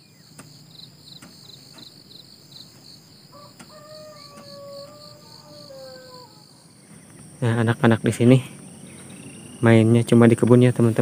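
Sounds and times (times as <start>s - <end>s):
crickets chirping: 0.0s - 11.0s
high insect drone: 0.0s - 11.0s
rooster crowing: 3.3s - 6.8s.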